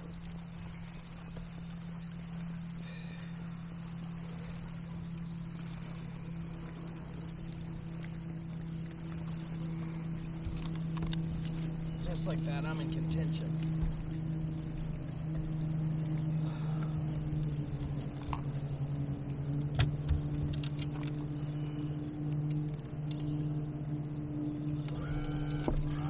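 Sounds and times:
boat motor humming: 0.0 - 26.0
fishing tackle clicks and knocks: 10.4 - 12.5, 17.7 - 18.5, 19.6 - 21.3, 22.2 - 23.4, 24.8 - 26.0.

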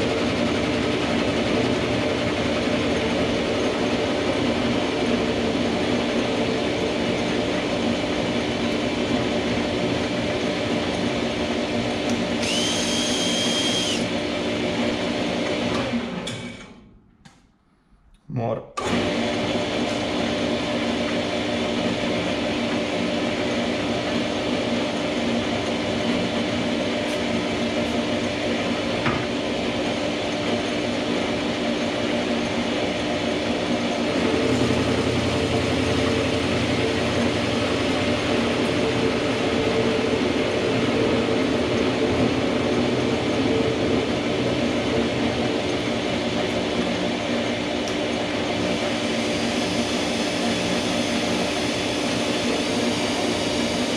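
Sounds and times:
metal lathe running: 0.0 - 16.0, 21.0 - 53.9
cordless drill turning: 12.1 - 14.2.

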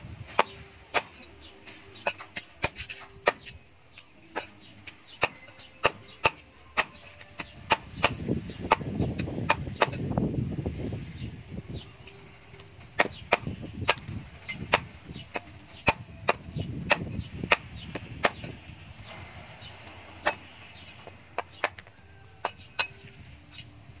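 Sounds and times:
cleaver chopping on wooden block: 2.1 - 3.6, 5.2 - 10.0, 13.0 - 14.1, 14.7 - 18.5.

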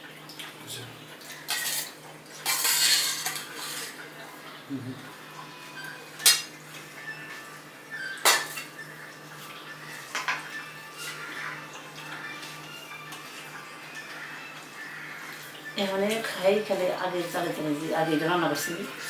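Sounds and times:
spoon scraping a steel bowl: 1.5 - 4.0.

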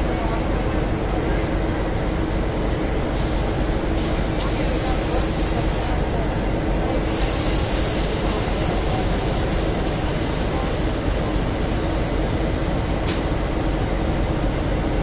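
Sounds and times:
diesel locomotives idling: 3.0 - 15.0.

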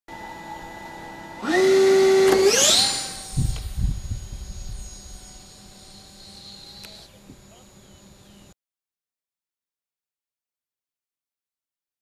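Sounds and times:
electric ducted fan whine: 0.1 - 8.6.

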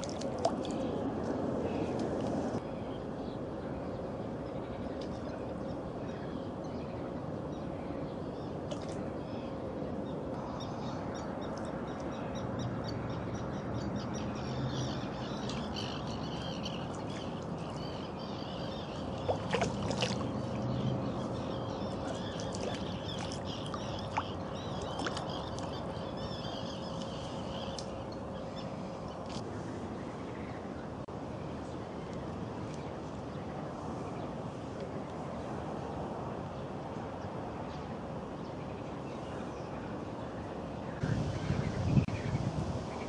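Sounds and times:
birds chirping: 10.4 - 31.0.

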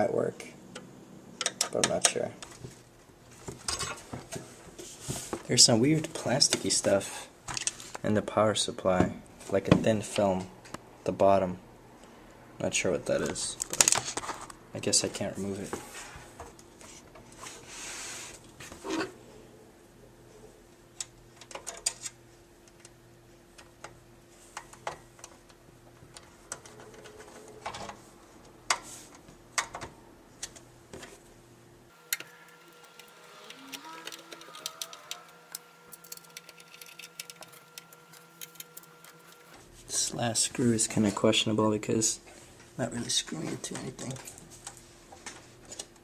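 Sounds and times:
small ticks: 32.1 - 39.5.

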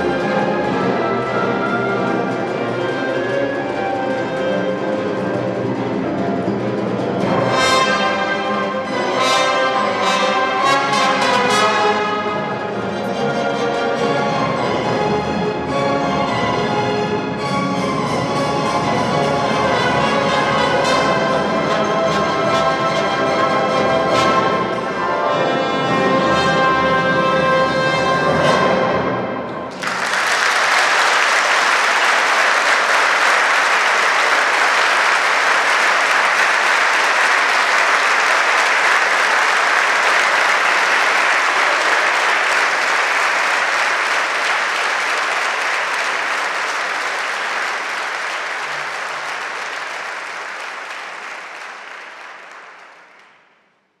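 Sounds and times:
audience applauding: 29.7 - 53.6.

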